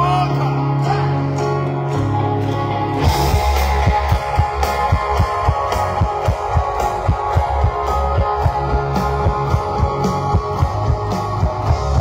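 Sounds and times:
electric guitars: 0:00.0 - 0:12.0
drum beat: 0:03.0 - 0:12.0.

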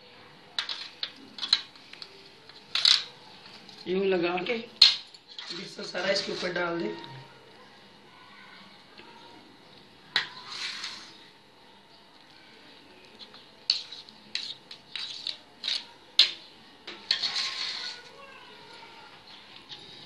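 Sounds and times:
spoon scraping steel tray: 0:10.2 - 0:11.2, 0:13.7 - 0:18.2.

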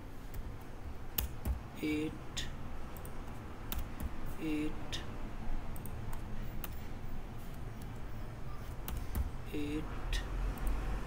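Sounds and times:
low background hum: 0:00.0 - 0:11.0
keyboard and mouse clicks: 0:00.3 - 0:01.6, 0:02.9 - 0:04.2, 0:05.7 - 0:06.8, 0:08.7 - 0:09.4, 0:10.5 - 0:10.9.

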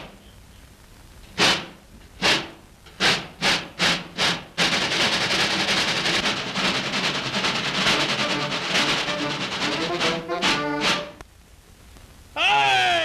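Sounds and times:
dense rattling noise: 0:01.3 - 0:11.2.

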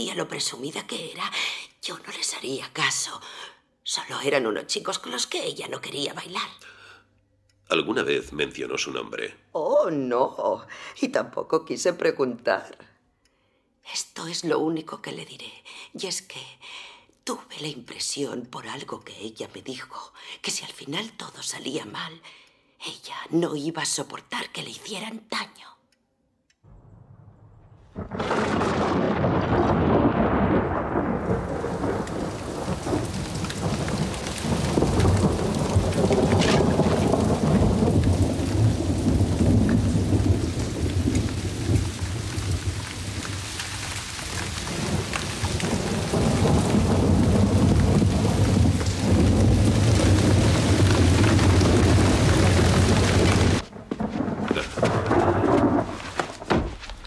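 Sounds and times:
deep rolling thunder: 0:26.7 - 0:56.7
heavy rain: 0:28.0 - 0:57.0.

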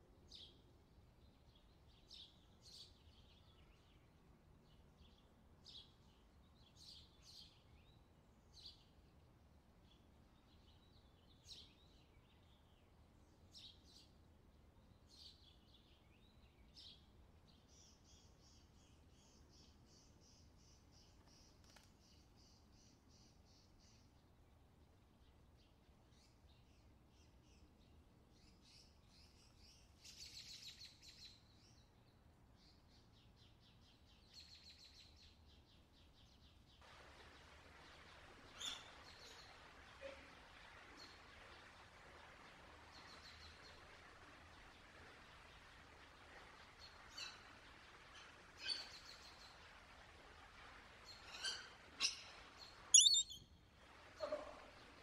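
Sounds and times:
songbirds chirping: 0:00.0 - 0:50.1, 0:51.0 - 0:53.5
lorikeet calls: 0:53.0 - 0:53.4
rapid bird trilling: 0:53.0 - 0:53.4.

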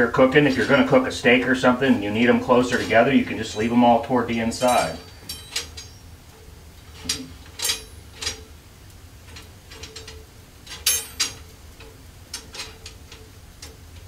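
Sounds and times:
metal pieces clinking: 0:04.6 - 0:06.1, 0:06.9 - 0:08.5, 0:09.3 - 0:11.5.

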